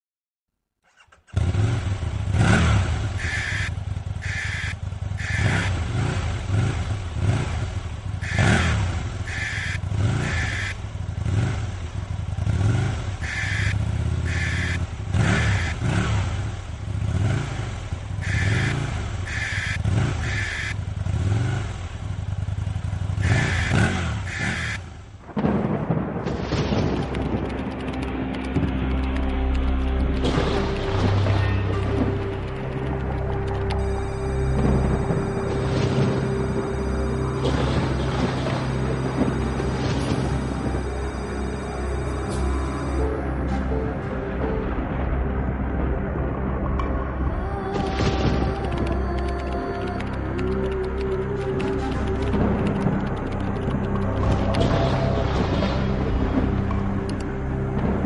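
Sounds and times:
motorcycle engine revving: 0:00.8 - 0:26.1, 0:27.1 - 0:43.8.

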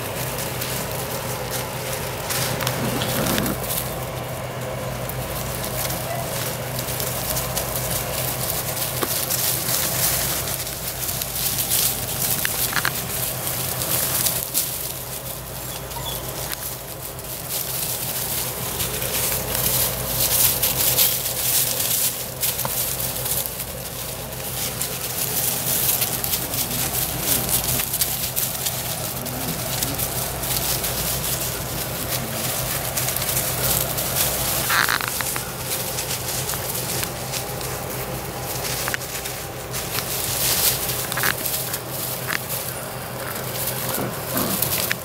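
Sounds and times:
leaves rustling under paws: 0:00.0 - 0:45.0
puppy squeak: 0:15.6 - 0:16.5.

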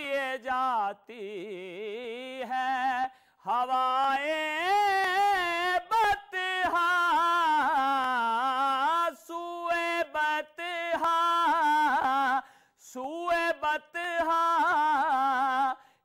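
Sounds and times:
man singing unaccompanied: 0:00.0 - 0:15.9.

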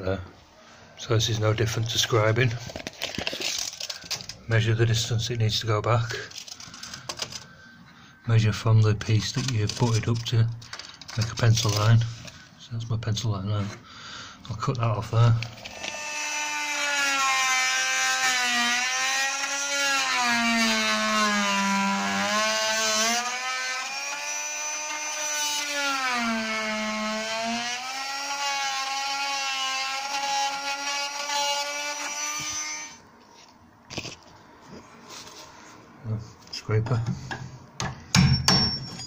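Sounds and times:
oscillating multi-tool cutting wood: 0:15.6 - 0:33.0.

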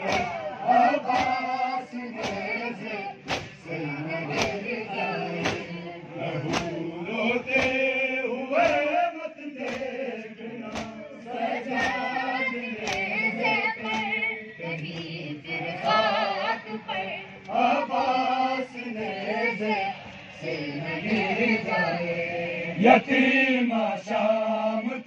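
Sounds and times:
hands slapping chests: 0:00.0 - 0:00.4, 0:01.1 - 0:01.4, 0:02.2 - 0:02.6, 0:03.2 - 0:03.6, 0:04.3 - 0:04.6, 0:05.4 - 0:05.7, 0:06.5 - 0:06.8, 0:07.5 - 0:07.8, 0:08.6 - 0:08.9, 0:09.6 - 0:09.9, 0:10.7 - 0:11.0, 0:11.8 - 0:12.0, 0:12.8 - 0:13.2, 0:13.8 - 0:14.2
men chanting in unison: 0:00.0 - 0:25.0.

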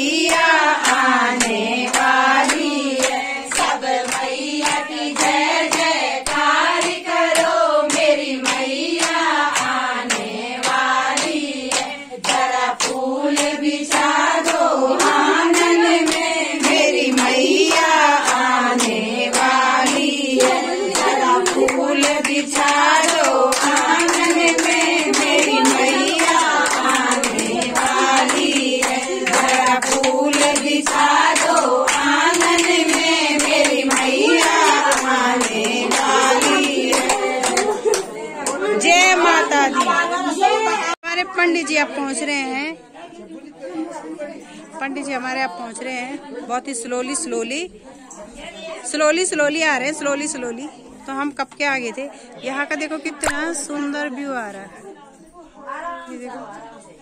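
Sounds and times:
group singing devotional song: 0:00.0 - 0:41.0
hand clapping in time: 0:00.2 - 0:38.7.

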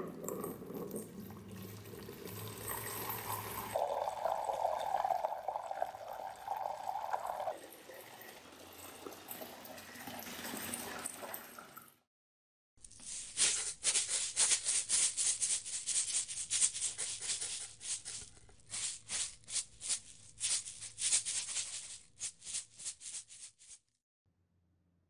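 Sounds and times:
dry granular rattling: 0:15.4 - 0:23.8.

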